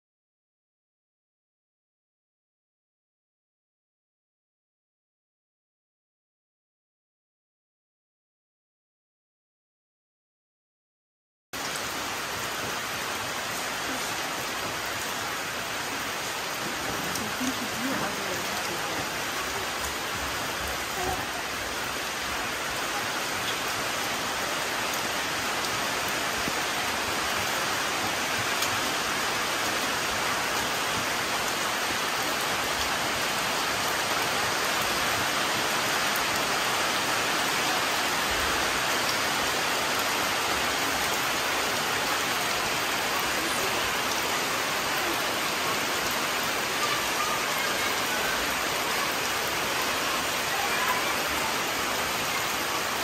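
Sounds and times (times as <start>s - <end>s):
rain falling on leaves: 11.6s - 53.0s.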